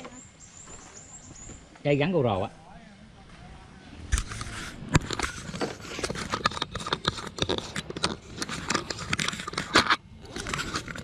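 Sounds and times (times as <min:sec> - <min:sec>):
camera mount and pole handling noise: 0:04.1 - 0:11.0.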